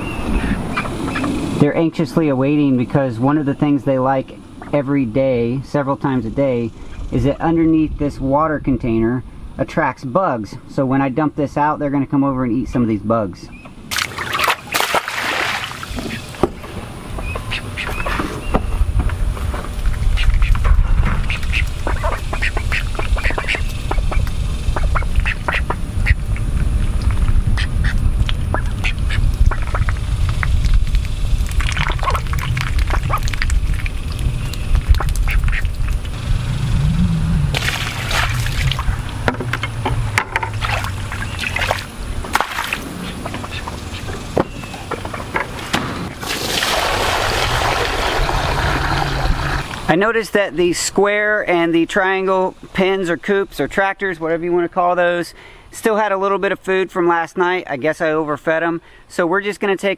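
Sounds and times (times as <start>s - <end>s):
ducks dabbling in mud: 0.0s - 1.4s, 13.9s - 18.2s, 19.8s - 36.1s, 37.5s - 39.8s, 40.5s - 49.8s
ducks quacking: 0.0s - 1.4s, 17.2s - 18.4s, 19.9s - 26.3s, 27.5s - 30.0s, 34.8s - 36.0s, 42.8s - 45.3s
water pouring into a pan: 46.2s - 49.4s.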